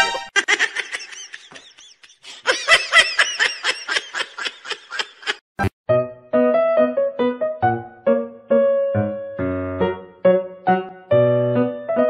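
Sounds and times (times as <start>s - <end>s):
high-pitched laughter: 0.3s - 5.7s.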